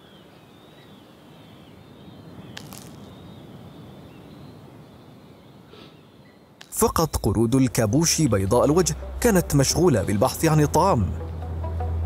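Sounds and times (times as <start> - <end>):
faint wavering wildlife calls: 0.0 - 7.4.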